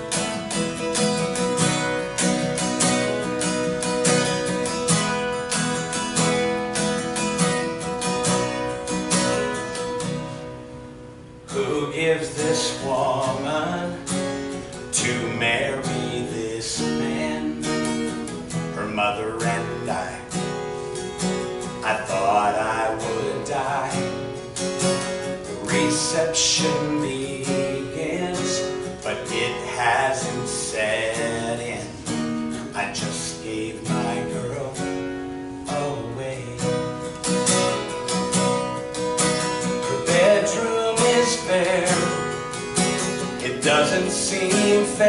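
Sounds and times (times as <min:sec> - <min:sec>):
acoustic guitar strumming: 0:00.0 - 0:45.0
man singing: 0:02.4 - 0:04.6, 0:11.5 - 0:20.6, 0:21.6 - 0:38.0, 0:39.6 - 0:45.0.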